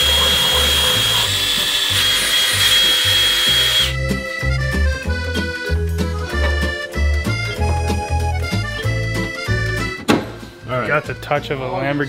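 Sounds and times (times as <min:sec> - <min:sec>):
cordless drill whining: 0:00.0 - 0:04.0.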